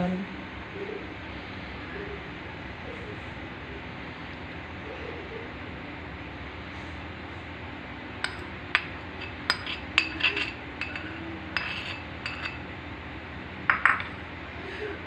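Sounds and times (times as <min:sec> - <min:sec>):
metal spoon clinking on dishes: 0:08.2 - 0:12.6, 0:13.7 - 0:14.2.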